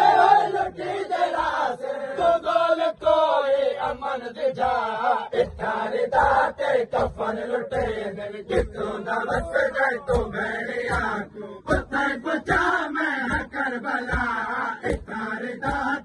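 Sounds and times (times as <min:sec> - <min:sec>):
men chanting a lament: 0:00.0 - 0:16.0
hands slapping on chests: 0:06.3 - 0:16.0.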